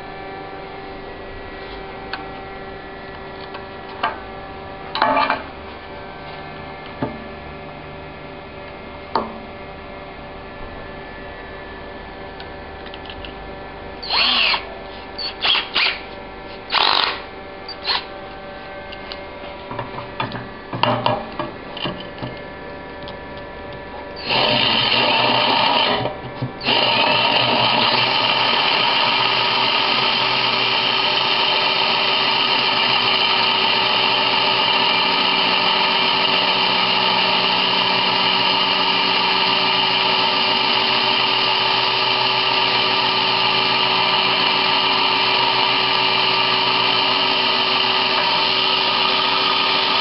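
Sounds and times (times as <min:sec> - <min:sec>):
cordless drill bursts: 0:14.0 - 0:16.0, 0:16.7 - 0:18.1, 0:24.2 - 0:26.0, 0:26.6 - 0:50.0
drill cutting into tile: 0:14.0 - 0:16.0, 0:16.7 - 0:18.1, 0:24.2 - 0:50.0.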